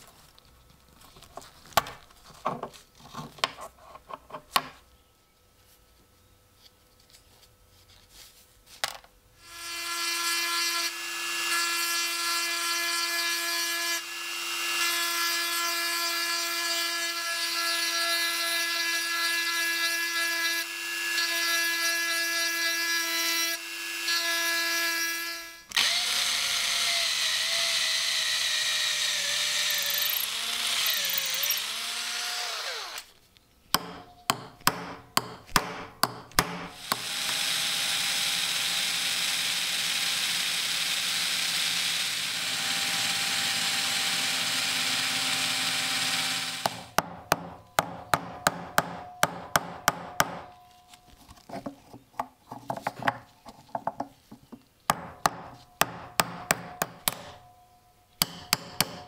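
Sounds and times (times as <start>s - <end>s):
drill boring into wood: 9.4s - 33.1s, 36.8s - 47.0s
rotary tool grinding metal: 9.4s - 33.1s.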